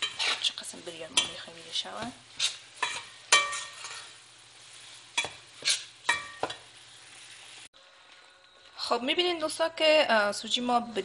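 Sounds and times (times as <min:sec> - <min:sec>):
metal spoon scraping pot: 0:00.0 - 0:01.4, 0:02.3 - 0:04.1, 0:05.2 - 0:06.5
faint sizzle: 0:00.0 - 0:11.0.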